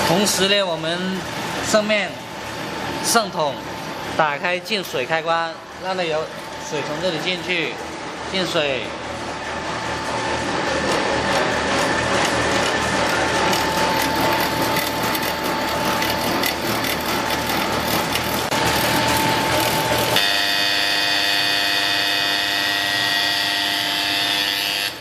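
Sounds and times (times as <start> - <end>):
machine noise with steady tone: 0.0 - 25.0
hum of several tones: 5.5 - 25.0.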